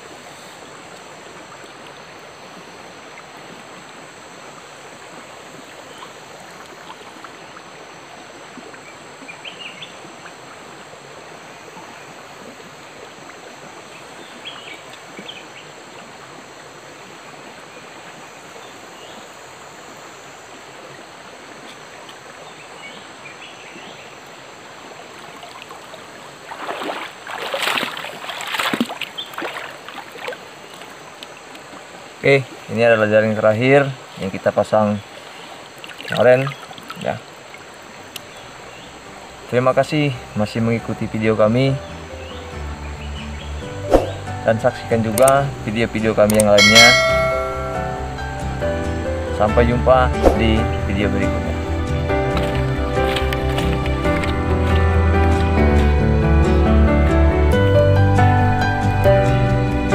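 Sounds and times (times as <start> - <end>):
water splashing: 0.0 - 18.2, 24.2 - 32.8, 34.0 - 39.5, 43.2 - 55.8
stream rushing: 0.0 - 59.9.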